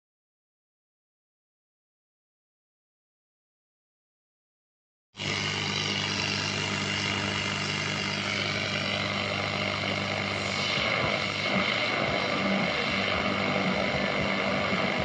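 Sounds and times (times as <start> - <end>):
radio static hiss: 5.2 - 15.0.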